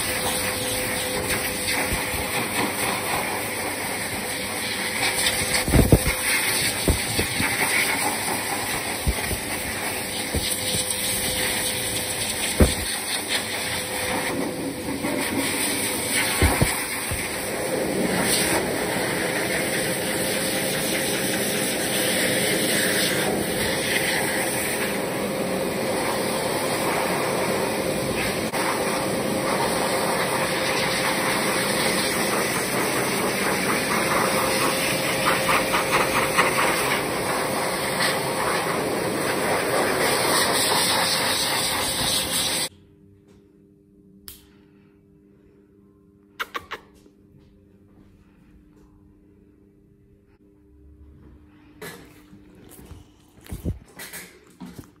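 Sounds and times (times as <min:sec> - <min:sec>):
grooming dryer blowing air: 0:00.0 - 0:42.7.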